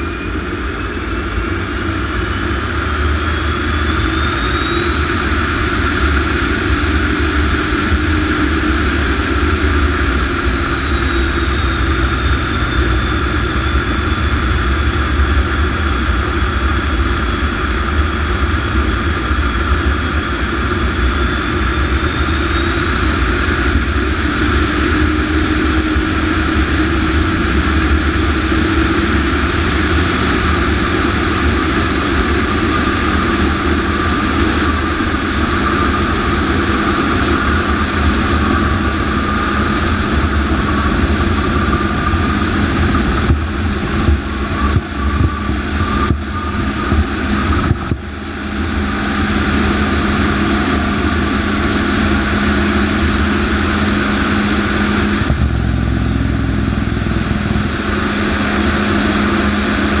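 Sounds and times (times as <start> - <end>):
jet engine at high power: 0.0 - 60.0.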